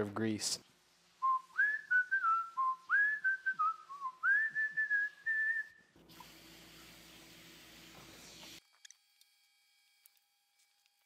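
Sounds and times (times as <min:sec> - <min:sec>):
man whistling: 0:01.2 - 0:05.8.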